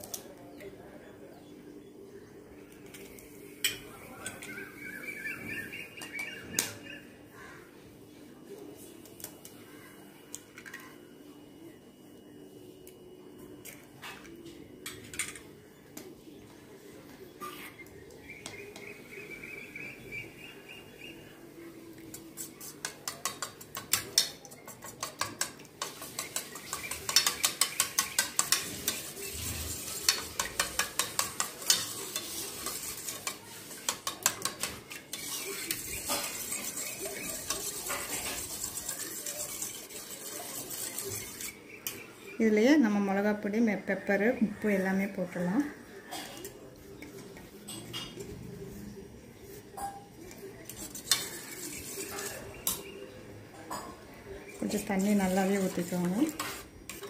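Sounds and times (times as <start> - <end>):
swishing stir: 22.1 - 42.0, 49.4 - 53.0, 54.4 - 57.0
spoon clinking metal bowl: 22.8 - 29.3.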